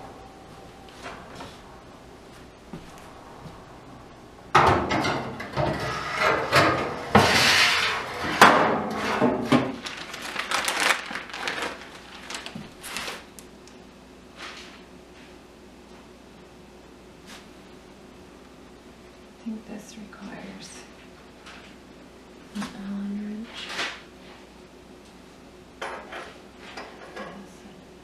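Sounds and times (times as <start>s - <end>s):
oven rack scraping and clattering: 4.5s - 9.8s, 25.8s - 27.4s.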